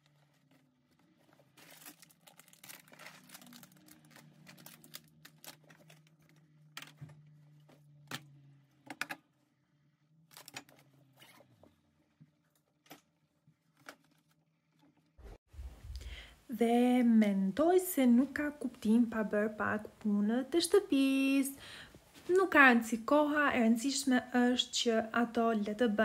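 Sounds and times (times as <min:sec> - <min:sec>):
plastic packaging crinkling: 0:00.0 - 0:07.0.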